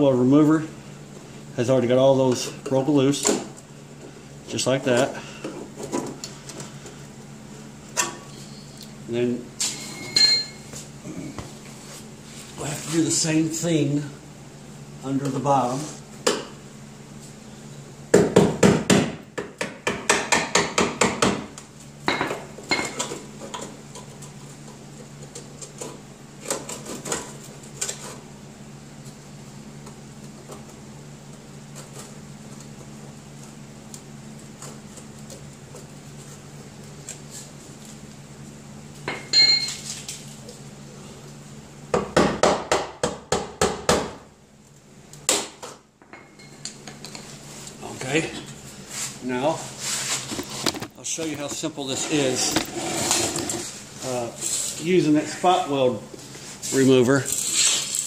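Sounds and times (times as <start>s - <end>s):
ringing metal clink: 9.8s - 10.6s.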